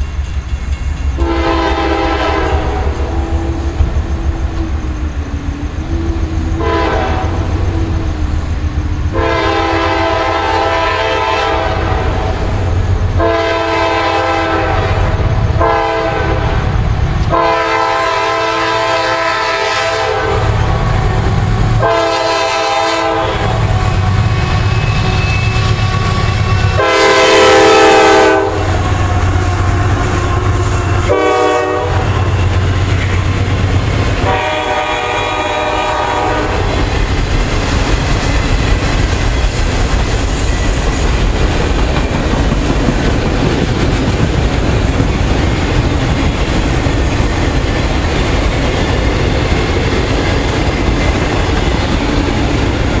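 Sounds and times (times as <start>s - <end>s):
train wheels clattering on rails: 0.0s - 11.2s, 20.4s - 53.0s
diesel train rumbling: 0.0s - 53.0s
locomotive air horn blasts: 1.2s - 3.8s, 6.6s - 7.9s, 9.1s - 12.4s, 13.2s - 16.7s, 17.3s - 20.9s, 21.8s - 32.6s, 34.2s - 36.8s.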